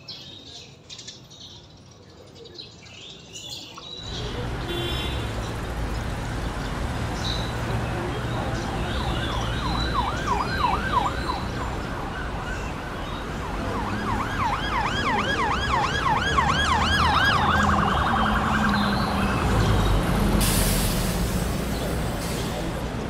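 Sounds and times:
electronic siren yelping: 8.8s - 19.4s.

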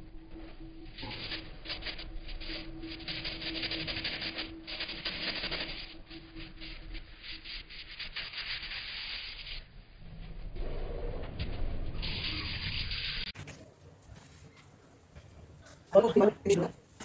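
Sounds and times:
faint hum: 0.0s - 8.4s.

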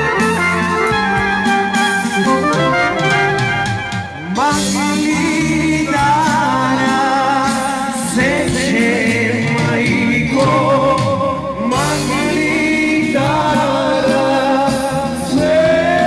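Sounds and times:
musical accompaniment: 0.0s - 16.0s
person singing folk song: 4.1s - 16.0s.

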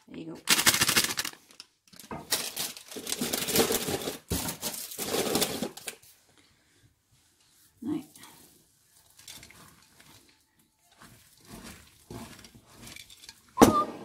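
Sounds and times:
wooden spoon stirring dough: 6.0s - 14.0s.

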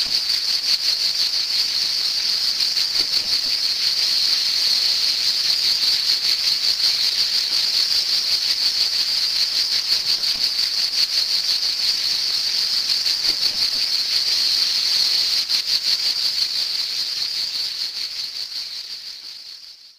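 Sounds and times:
cicada buzzing: 0.0s - 19.6s.

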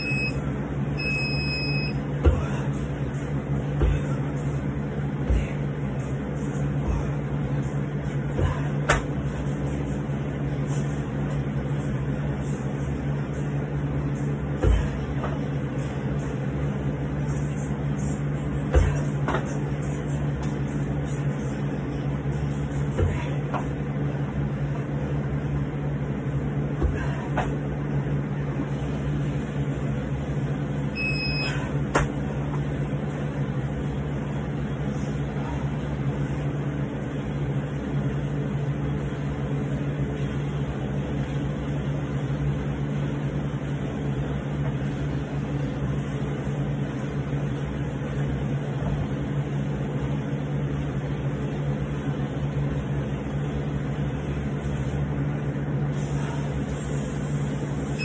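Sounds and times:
short high beep: 0.0s - 0.4s, 1.0s - 2.0s, 31.0s - 31.6s
low mechanical hum: 0.0s - 58.0s.

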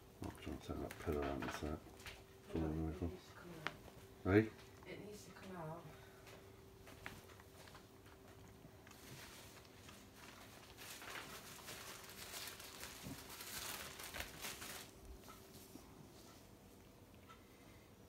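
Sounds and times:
faint steady hum: 0.0s - 18.0s
rustling of plush bedding: 6.8s - 15.7s.

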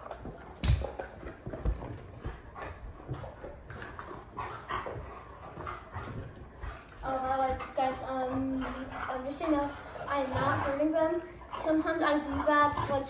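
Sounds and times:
dogs scuffling: 0.0s - 9.7s
dog vocal noises: 0.0s - 13.0s.

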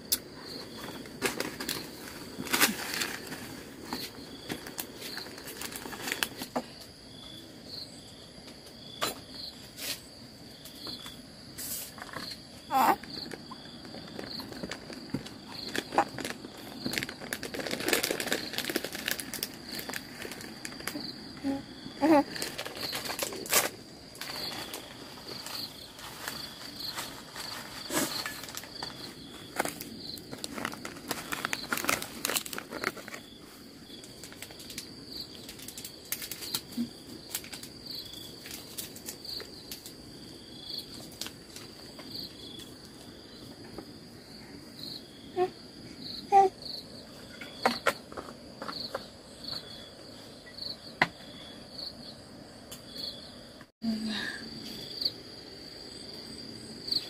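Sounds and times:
rustling and crackling: 0.0s - 7.0s, 9.5s - 44.0s
insects chirping: 0.0s - 57.0s.

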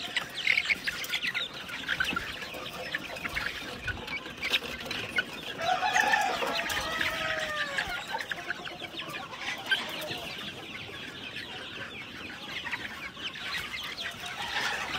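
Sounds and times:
chicken falling calls: 0.0s - 14.9s
chickens cheeping and clucking: 0.0s - 14.9s.

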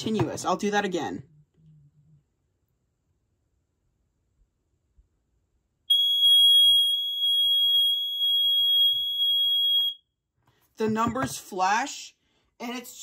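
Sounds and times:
alarm high-pitched tone: 5.9s - 10.0s.

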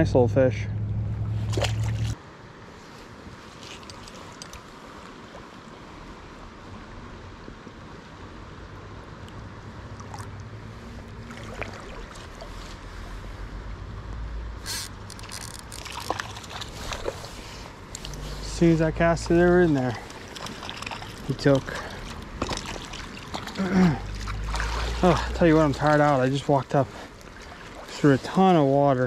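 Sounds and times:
low rumble: 0.0s - 2.2s
short splashes or knocks: 1.4s - 2.2s, 11.2s - 12.6s, 14.7s - 17.3s, 19.2s - 26.2s
stream rippling over rocks: 1.4s - 13.8s, 14.6s - 29.0s.

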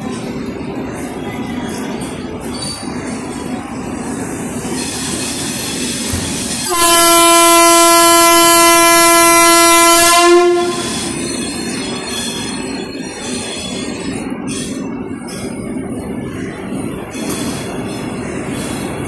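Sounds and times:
train rumbling: 0.0s - 19.0s
train horn blast: 6.6s - 11.2s.

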